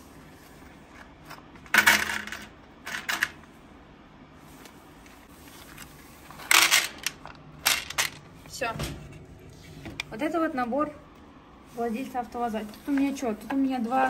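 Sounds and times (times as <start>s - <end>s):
metal fasteners clattering: 6.3s - 8.2s.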